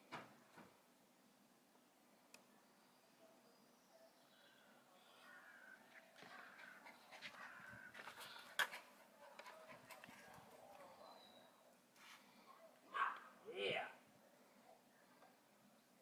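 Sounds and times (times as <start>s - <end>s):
faint bird calls: 2.6s - 8.6s.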